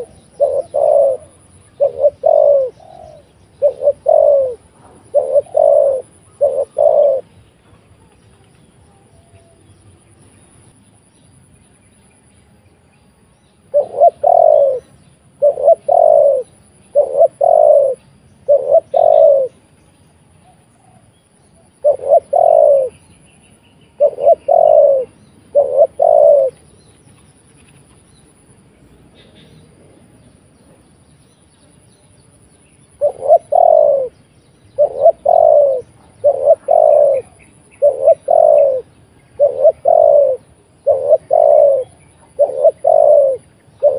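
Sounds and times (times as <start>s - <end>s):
dove cooing: 0.0s - 7.3s, 13.7s - 19.6s, 21.7s - 23.0s, 24.0s - 26.7s, 32.9s - 43.9s.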